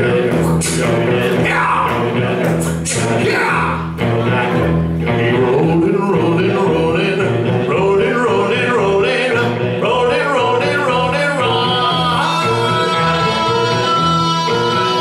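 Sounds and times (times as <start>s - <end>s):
electric guitar: 0.0s - 15.0s
live country band playing: 0.0s - 15.0s
man singing loudly: 0.0s - 15.0s
upright bass: 0.0s - 15.0s.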